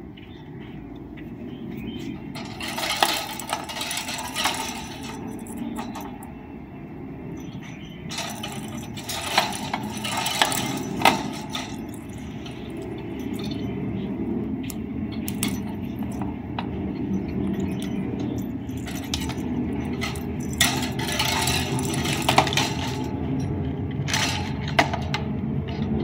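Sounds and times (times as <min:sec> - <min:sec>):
steady low rumble: 0:00.0 - 0:26.0
plastic ball toy clinking and rattling: 0:08.1 - 0:13.7, 0:17.3 - 0:23.4.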